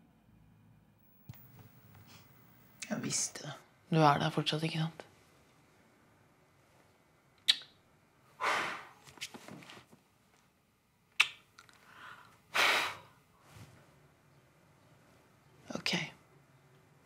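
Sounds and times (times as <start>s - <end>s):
lip smacks: 7.4s - 7.8s, 11.2s - 11.8s
soft mouth clicks: 7.4s - 7.8s, 11.2s - 11.8s
breathy puff of air: 8.4s - 9.0s, 11.9s - 13.2s.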